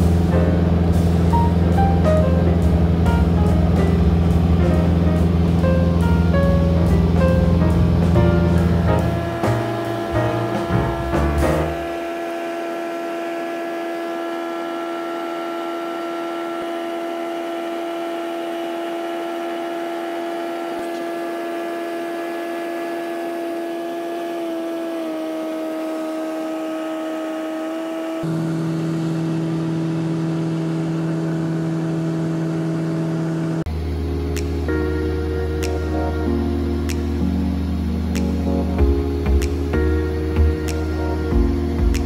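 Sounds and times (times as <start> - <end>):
low hum: 0.0 - 26.4, 28.2 - 42.0
aircraft engine and propeller droning: 0.0 - 42.0.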